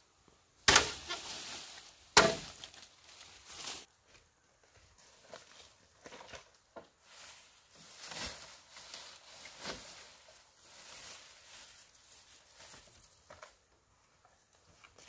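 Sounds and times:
bamboo leaves rustling: 0.6 - 15.0.

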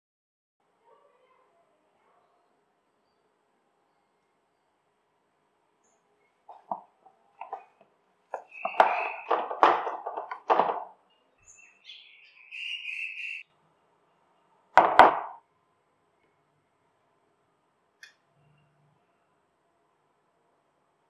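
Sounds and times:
masher scraping plastic bowl: 8.4 - 10.9.

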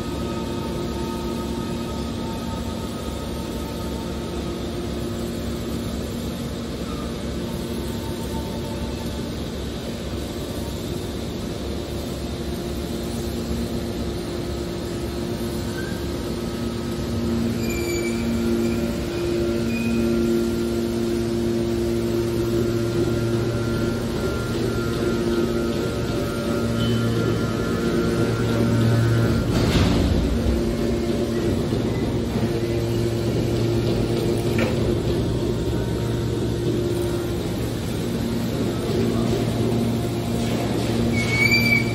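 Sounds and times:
hydraulic baler motor droning: 0.0 - 41.9
high squeals: 17.3 - 20.7, 41.0 - 41.9.

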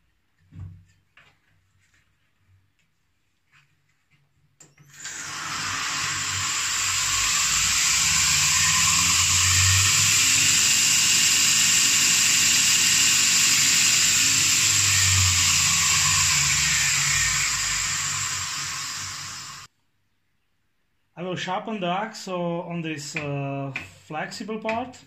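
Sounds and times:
belt sander running: 4.9 - 19.7.

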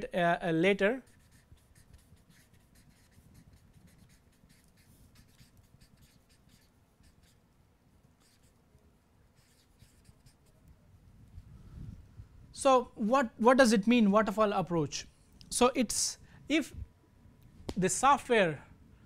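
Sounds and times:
marker pen squeaking on paper: 1.0 - 7.4, 8.2 - 8.6, 9.4 - 10.7.

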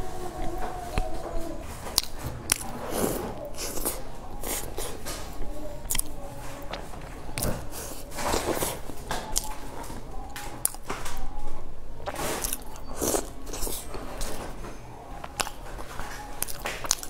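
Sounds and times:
chewing: 0.0 - 17.0.

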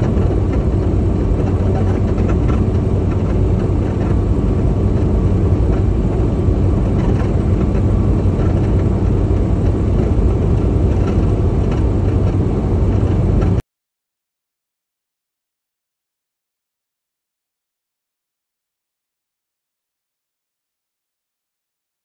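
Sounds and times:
road noise: 0.0 - 13.6
truck diesel engine drone: 0.0 - 13.6.

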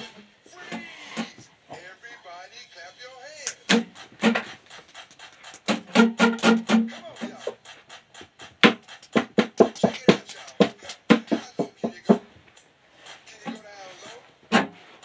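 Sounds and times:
acoustic guitar strumming: 5.7 - 7.2.

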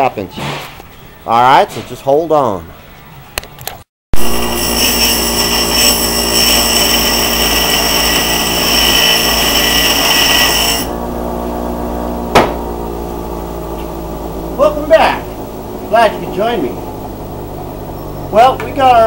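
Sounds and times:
power grinder grinding metal: 4.2 - 19.0.

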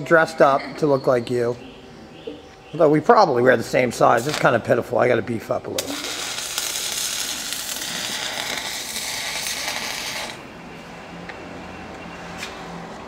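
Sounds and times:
welding arc crackling: 4.1 - 4.7, 5.7 - 10.5.

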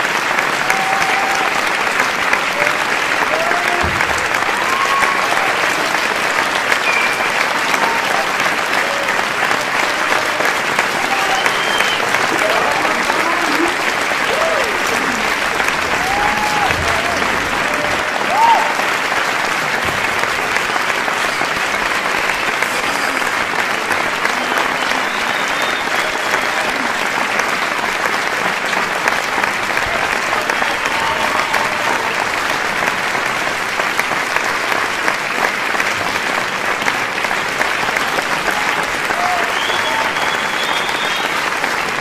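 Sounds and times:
large crowd applauding: 0.0 - 42.0
people shouting: 15.9 - 18.8.

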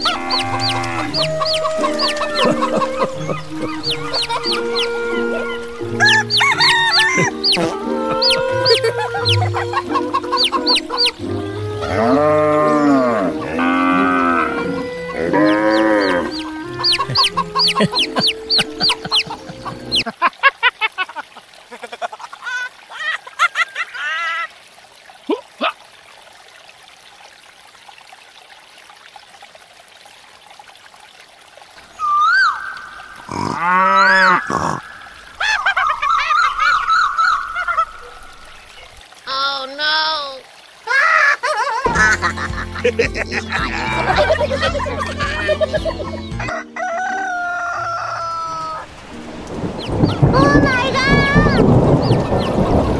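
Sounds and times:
chicken clucks: 16.8 - 20.0.

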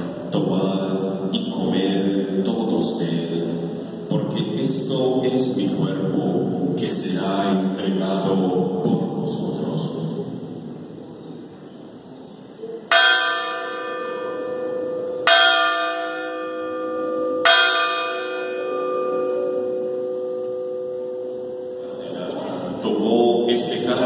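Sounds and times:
church bell ringing: 12.9 - 24.0.

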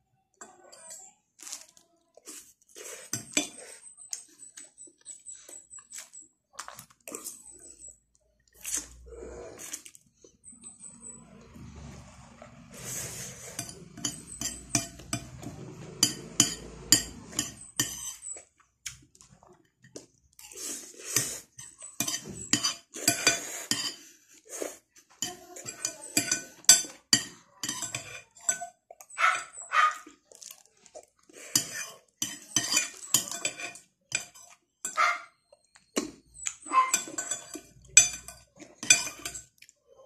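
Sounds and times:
cutlery clinking and scraping plate: 2.3 - 6.2, 12.6 - 19.0, 19.6 - 24.2, 25.0 - 30.0, 31.3 - 39.6.

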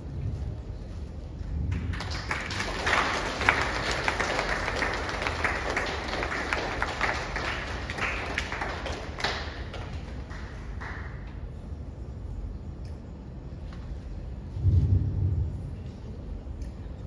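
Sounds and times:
audience applauding: 1.7 - 11.5.

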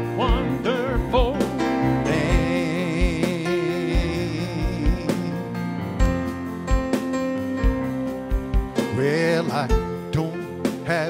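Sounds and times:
man singing gospel: 0.0 - 5.7, 8.8 - 11.0
electronic keyboard with beat: 0.0 - 11.0.

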